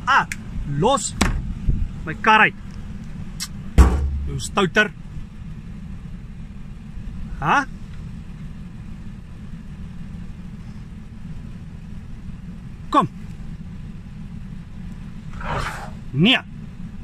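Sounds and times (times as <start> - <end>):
vehicle engine idling: 0.0 - 17.0
man speaking: 4.2 - 4.9
short rising call: 15.3 - 16.1.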